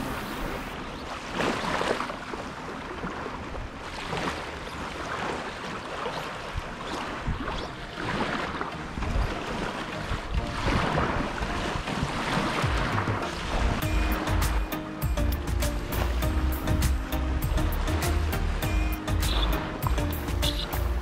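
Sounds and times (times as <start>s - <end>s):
seawater lapping at shore: 0.0s - 21.0s
wind rumbling on microphone: 6.4s - 14.6s.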